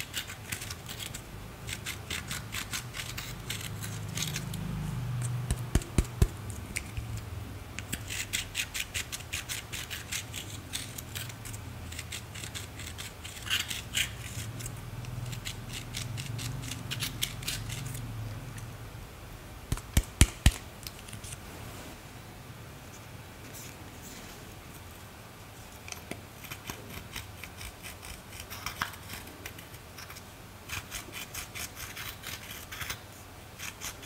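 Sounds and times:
pen scraping eyeshadow: 0.0s - 4.6s, 7.9s - 18.0s, 30.0s - 33.0s.

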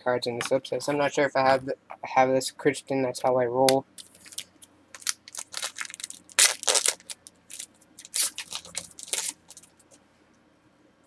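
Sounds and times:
card pack wrapper crinkling: 4.0s - 9.9s.

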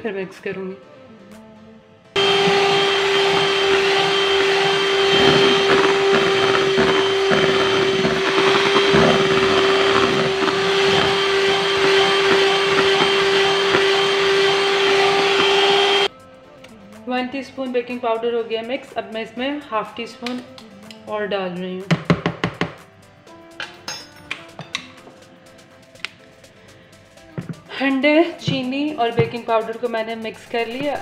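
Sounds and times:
electric hand mixer whine: 2.2s - 16.1s.

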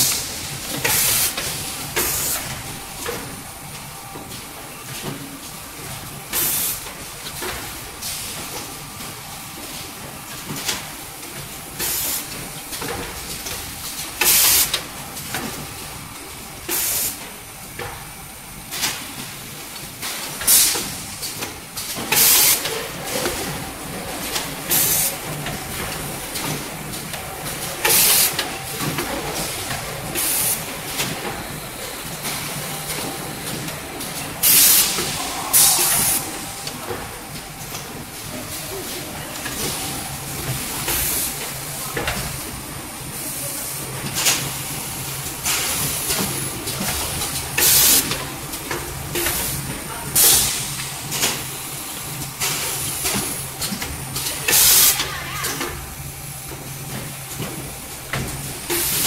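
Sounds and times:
machine humming: 23.0s - 41.9s
pneumatic air hisses: 34.4s - 37.3s.

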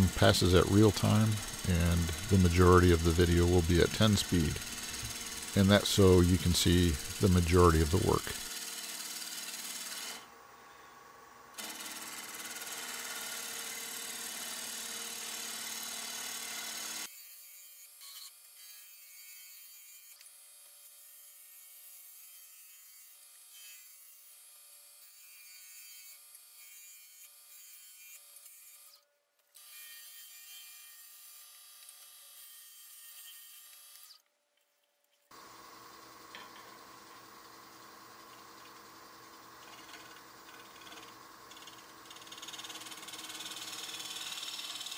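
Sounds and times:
lathe running: 0.0s - 8.6s, 35.3s - 44.9s
gouge shaving wood: 39.5s - 44.9s.

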